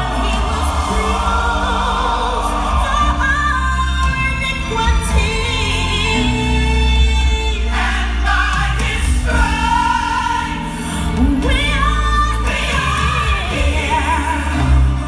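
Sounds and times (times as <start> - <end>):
heavy bass line: 0.0 - 7.7
choir singing gospel: 0.0 - 15.0.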